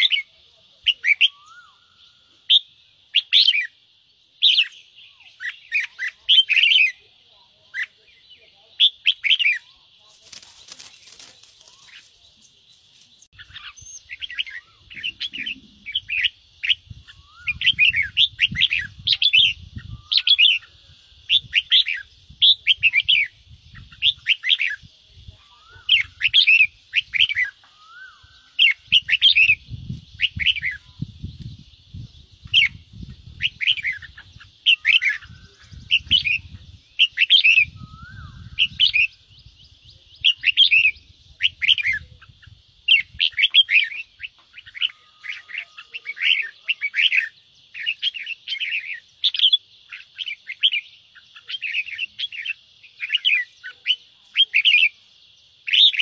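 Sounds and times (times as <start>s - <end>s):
bird harsh chattering calls: 13.2s - 55.0s.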